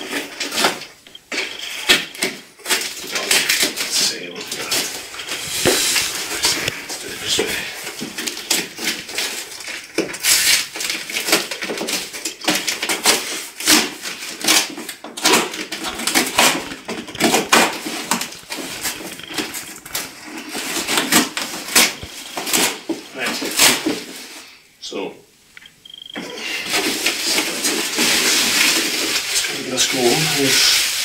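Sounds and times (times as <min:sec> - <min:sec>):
packing tape ripping: 0:00.0 - 0:24.3, 0:26.6 - 0:31.0
cardboard scraping and rustling: 0:00.0 - 0:24.4, 0:26.6 - 0:31.0.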